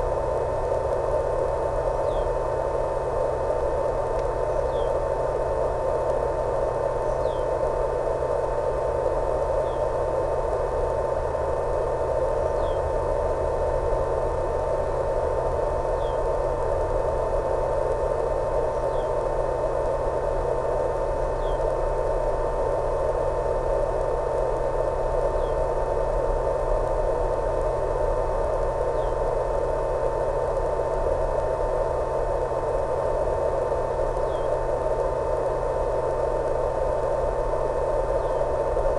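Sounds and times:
constant whine: 0.0 - 38.9
low hum: 0.0 - 38.9
static hiss: 0.0 - 38.9.

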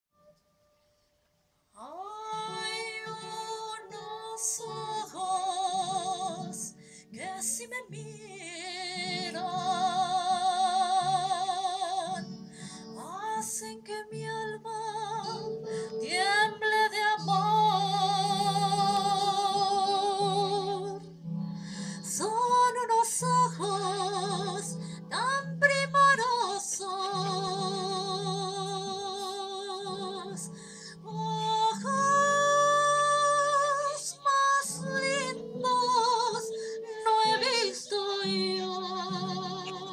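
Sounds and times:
woman singing with vibrato: 1.8 - 21.1, 22.0 - 39.9.

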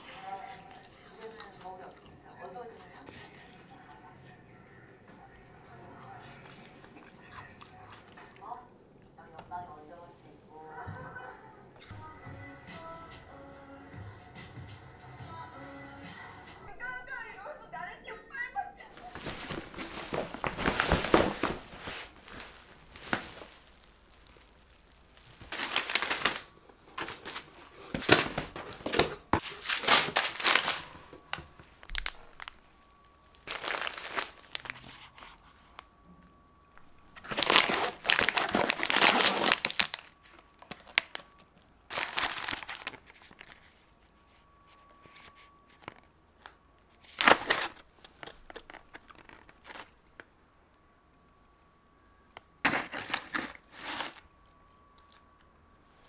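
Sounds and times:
plastic packaging crinkling: 19.0 - 36.0, 36.8 - 50.3, 52.6 - 55.3.

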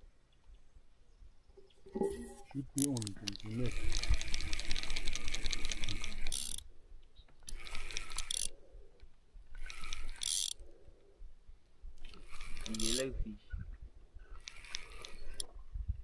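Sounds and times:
fishing reel ratchet clicking: 2.8 - 6.7, 7.4 - 8.6, 9.5 - 10.6, 12.0 - 13.1, 14.4 - 15.5.

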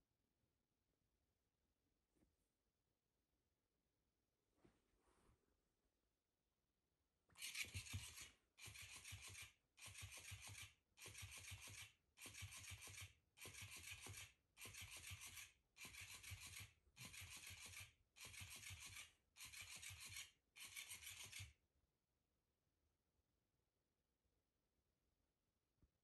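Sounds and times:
toy motor running: 7.4 - 21.6.

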